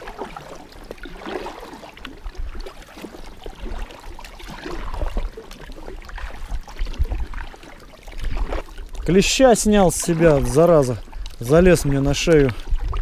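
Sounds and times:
kayak paddle dipping into water: 0.0 - 13.0
water dripping off paddle blades: 0.0 - 13.0
water splashing: 0.0 - 13.0.

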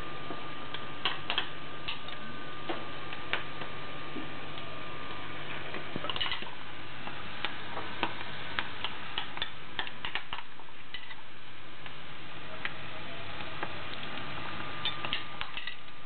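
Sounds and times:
fritters sizzling in hot oil: 5.9 - 16.0.

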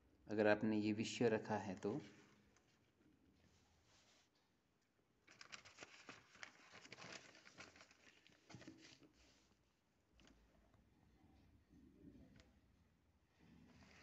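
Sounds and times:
paper rustling: 5.2 - 9.6, 13.8 - 14.0.

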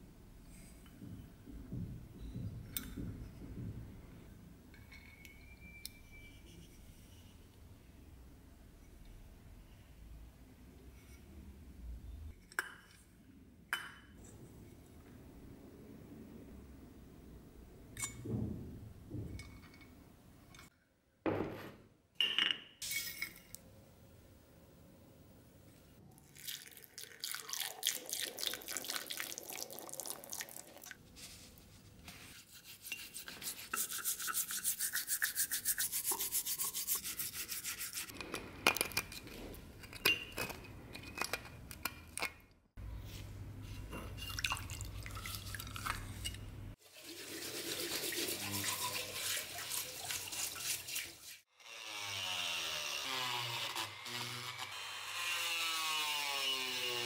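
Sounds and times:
toothbrush scrubbing metal box: 32.3 - 38.2, 47.2 - 51.4
rotary tool whining and grinding: 51.6 - 57.0.

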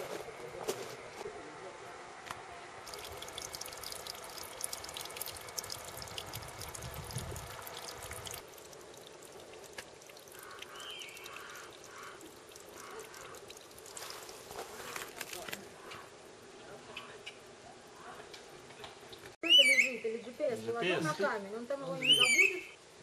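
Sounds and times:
water trickling and dripping over rock: 2.8 - 15.6.

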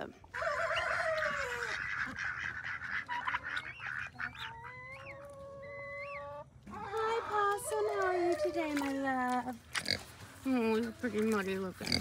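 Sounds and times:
poultry calling: 0.4 - 8.9.

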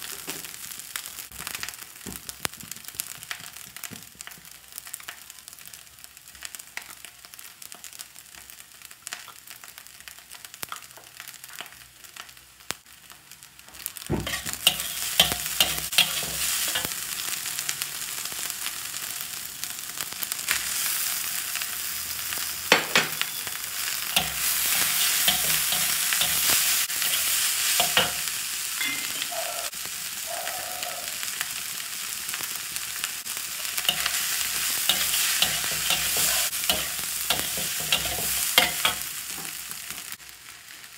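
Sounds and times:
rice sizzling in a wok: 0.0 - 40.9
spatula scraping a wok: 14.2 - 16.9, 23.2 - 29.6, 33.8 - 39.2.

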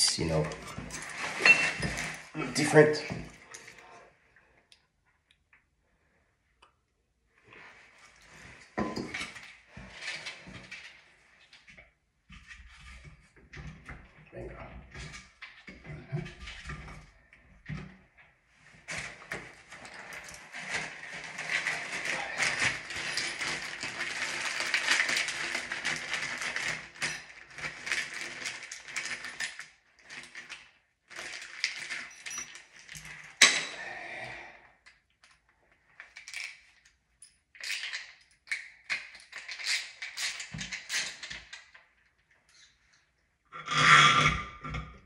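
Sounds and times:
plastic and metal parts clinking: 19.9 - 33.6.

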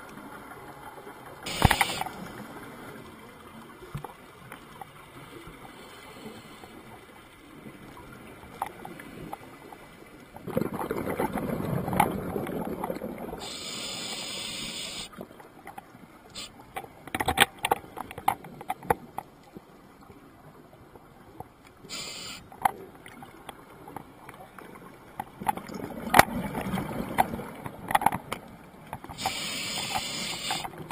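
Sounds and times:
clicks and crackles: 1.4 - 2.3, 7.9 - 13.2, 15.1 - 19.7, 21.4 - 30.9
regulator inhale hiss: 1.5 - 2.1, 5.8 - 6.8, 13.4 - 15.1, 21.9 - 22.5, 29.2 - 30.8
exhaled bubbles gurgling: 10.4 - 15.3.

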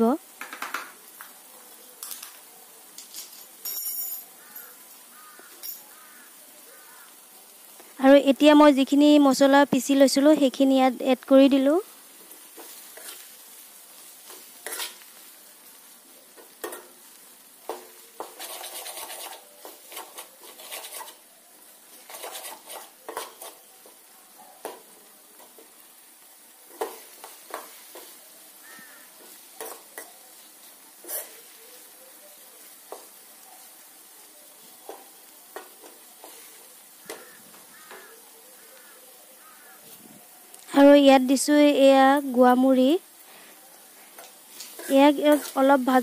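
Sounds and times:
faint frying sizzle: 0.0 - 46.0
spatula scraping metal pan: 14.6 - 15.0, 18.2 - 21.3, 21.9 - 23.7, 44.5 - 45.7.

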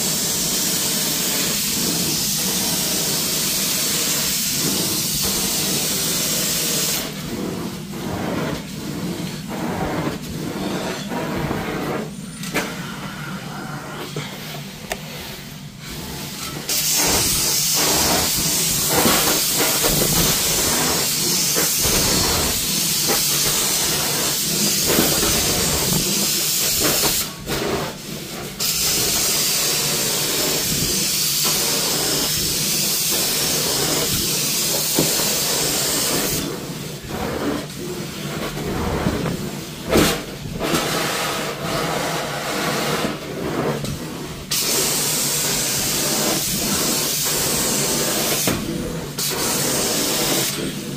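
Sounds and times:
carpet wand spray hissing: 0.0 - 8.8, 15.8 - 37.2, 44.4 - 50.9
vacuum suction rushing: 0.2 - 28.3.

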